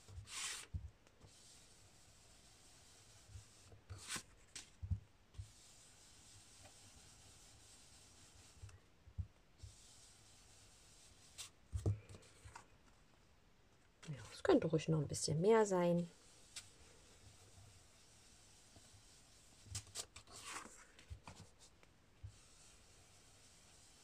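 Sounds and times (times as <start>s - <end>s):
brush swishing on cardstock: 5.4s - 8.7s, 16.0s - 24.0s.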